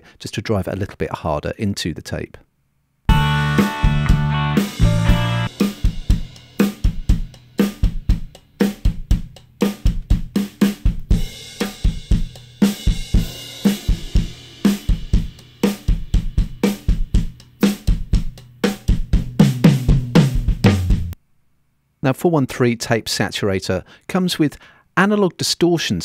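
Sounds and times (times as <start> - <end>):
drum kit groove: 3.1 - 21.2.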